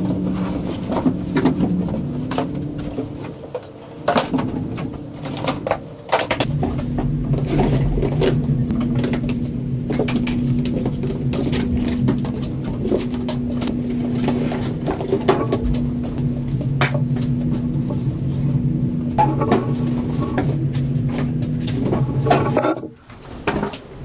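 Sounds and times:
knocks and scrapes: 0.0s - 18.6s, 19.2s - 24.0s
low steady hum: 0.0s - 24.0s.

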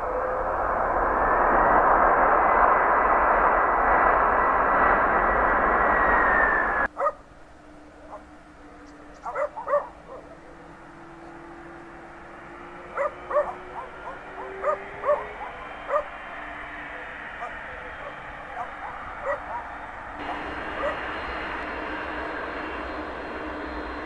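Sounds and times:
faint hum: 0.0s - 24.0s
jet engines roaring with whine: 0.0s - 24.0s
dog barking: 6.9s - 7.2s, 8.0s - 8.3s, 9.2s - 10.6s, 12.9s - 16.1s, 18.5s - 21.0s.

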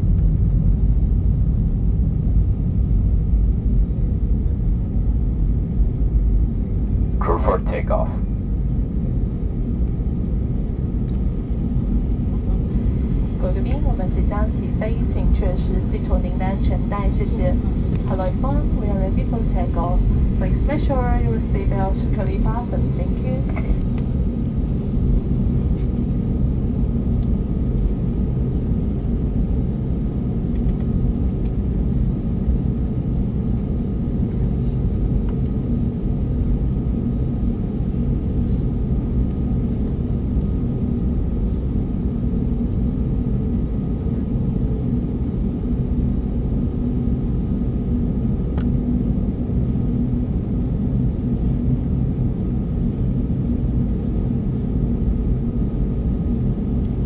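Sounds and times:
jet engines rumbling from cabin: 0.0s - 57.0s
faint steady whine: 6.7s - 27.4s.

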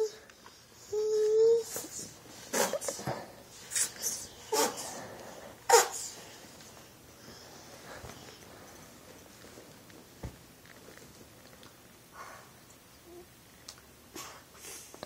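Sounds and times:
toddler humming: 0.0s - 0.2s, 0.8s - 2.2s.

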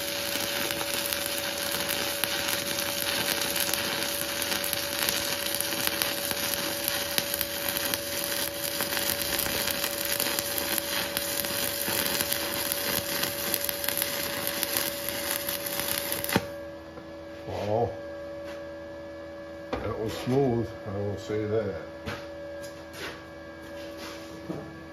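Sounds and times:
welding arc crackling and sizzling: 0.0s - 16.6s
welder faint hum: 0.0s - 18.8s.

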